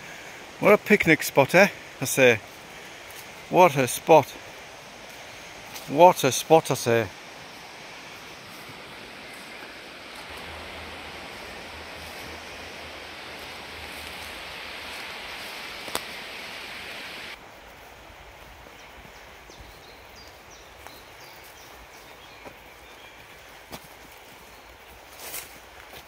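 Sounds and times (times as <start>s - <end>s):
broad hiss: 0.0s - 19.4s
low rumble: 10.3s - 15.1s.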